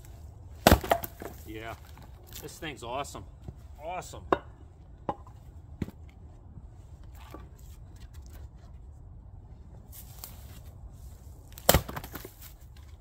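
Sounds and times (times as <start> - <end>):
axe chopping wood: 0.6 - 1.5, 11.5 - 12.5.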